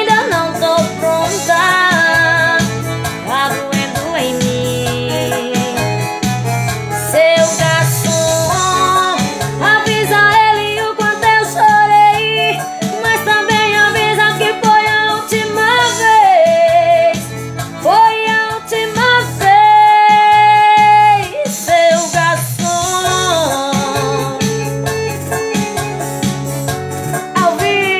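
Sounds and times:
woman singing: 0.0 - 6.3, 6.9 - 25.1, 27.2 - 27.9
keyboard backing track: 0.0 - 27.9.

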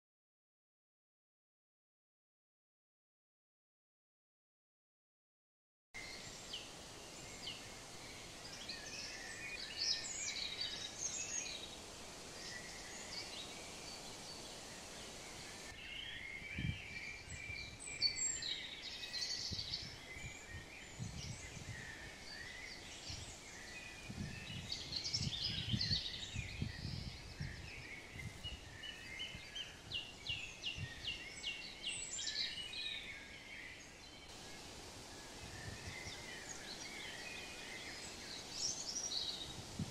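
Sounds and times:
outdoor hiss: 6.0 - 15.9, 31.3 - 39.9
songbirds chirping and trilling: 6.0 - 39.9.

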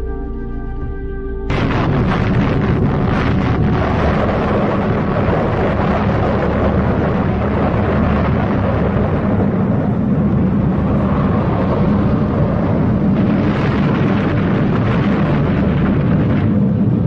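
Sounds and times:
music: 0.0 - 4.4
loud rushing rumble: 0.0 - 17.0.

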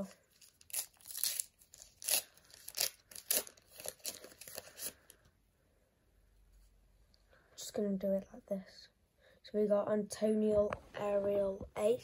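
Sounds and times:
card pack wrapper tearing: 0.3 - 5.1.

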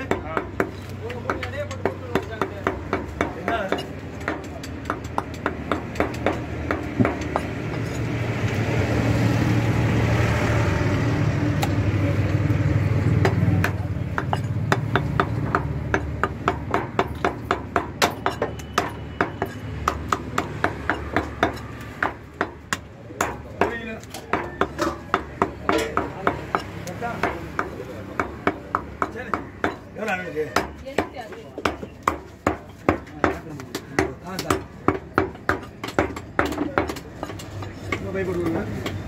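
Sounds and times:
cleaver chopping on wooden block: 0.0 - 7.8, 13.2 - 39.0
passing vehicle engine rumble: 6.4 - 16.0.

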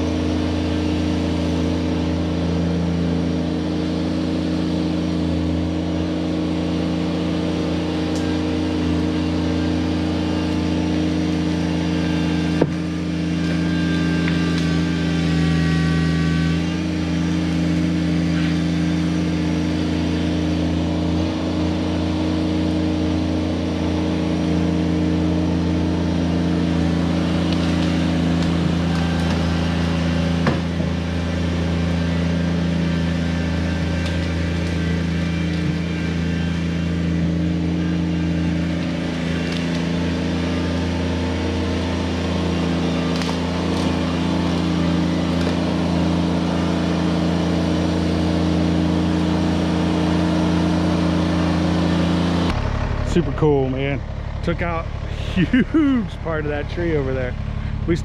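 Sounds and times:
tractor diesel engine running: 0.0 - 58.0.

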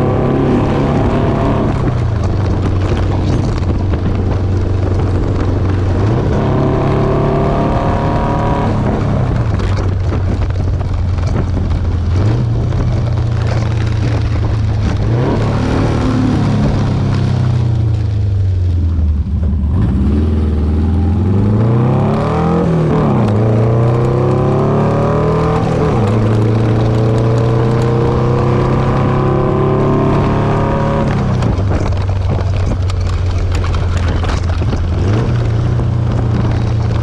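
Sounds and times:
car engine revving through gears: 0.0 - 17.9, 19.5 - 37.0
wind noise rushing: 0.0 - 18.0.

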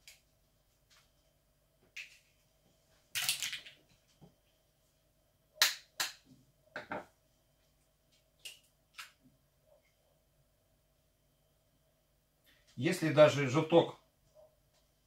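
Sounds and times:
eggshells cracking: 3.1 - 3.8.

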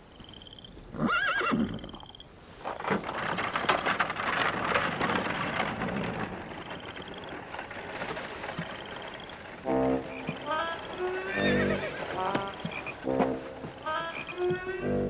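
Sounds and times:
horse whinnying: 1.0 - 2.0, 9.6 - 13.2
hooves clopping: 1.2 - 15.0
rolling noise: 2.4 - 15.0.

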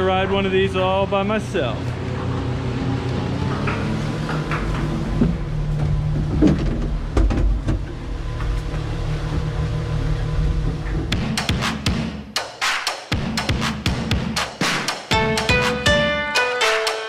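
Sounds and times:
ski lift mechanical hum: 0.0 - 11.2
knocks and rattles: 3.4 - 9.7, 10.3 - 11.9.

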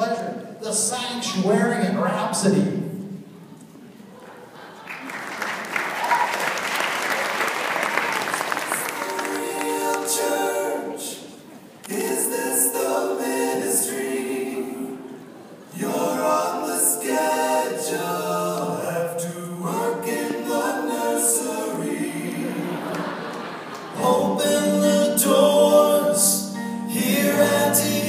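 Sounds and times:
choir singing a cappella: 8.5 - 28.0.

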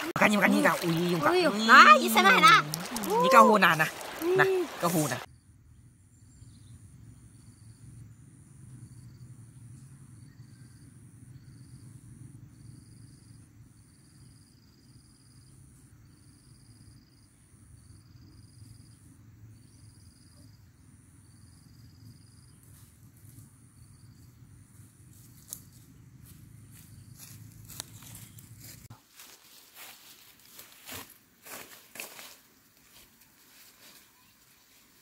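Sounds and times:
footsteps through grass and leaves: 0.0 - 5.3, 24.8 - 35.0
high buzzing insect call: 0.0 - 5.4
lower buzzing insect call: 0.0 - 28.9.

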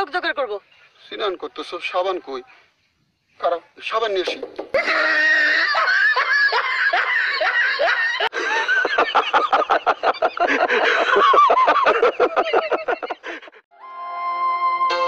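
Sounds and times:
men laughing heartily: 4.7 - 13.7.

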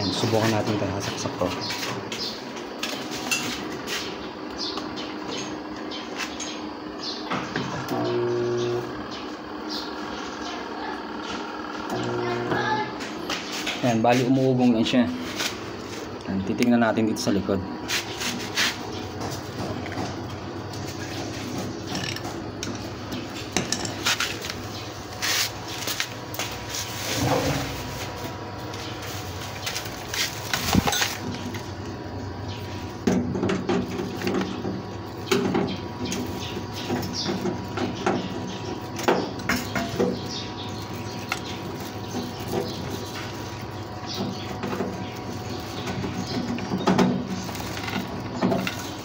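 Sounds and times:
washing machine motor humming: 0.0 - 49.0.

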